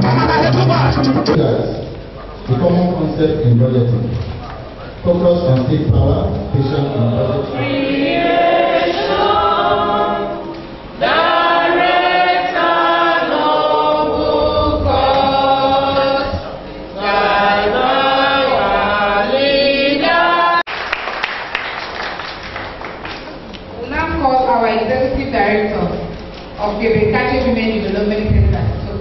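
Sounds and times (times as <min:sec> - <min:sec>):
group singing without instruments: 0:00.0 - 0:01.4, 0:06.7 - 0:20.7
handclaps: 0:20.7 - 0:23.6.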